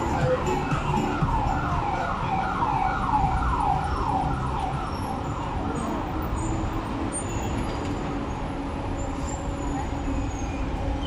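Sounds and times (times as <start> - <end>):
emergency siren yelping: 0.0 - 6.0
street traffic rumble: 0.0 - 11.0.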